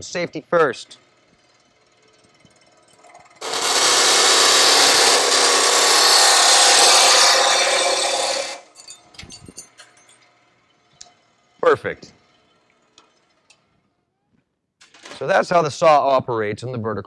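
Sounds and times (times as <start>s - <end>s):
bandsaw cutting aluminum: 0.9s - 13.8s.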